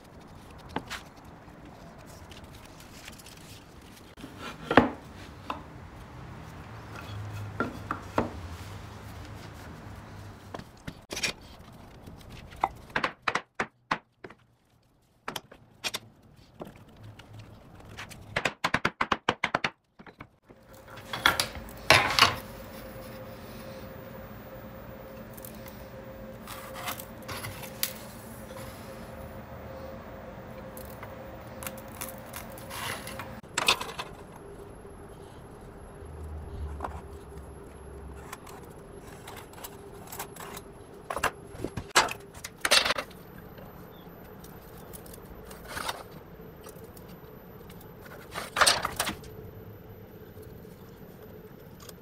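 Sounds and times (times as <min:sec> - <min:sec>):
faint steady hum: 0:20.4 - 0:52.0.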